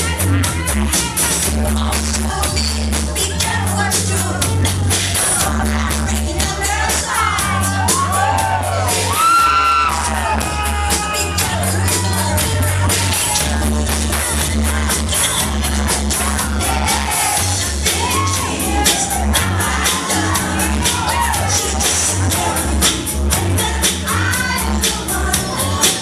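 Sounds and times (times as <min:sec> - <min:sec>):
dance music over loudspeakers: 0:00.0 - 0:26.0
gliding vocal cries: 0:16.4 - 0:24.8.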